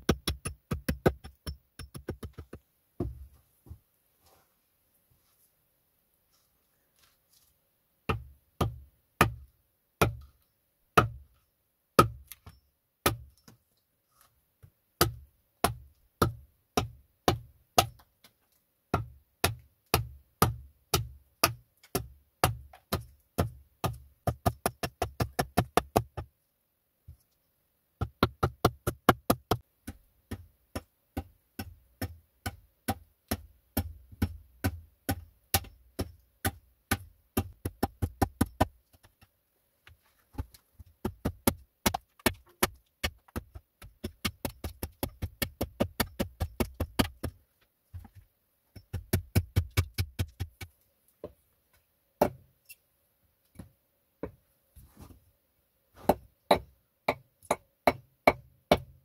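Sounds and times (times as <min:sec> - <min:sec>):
hatchet chopping into log: 0:56.0 - 0:58.9.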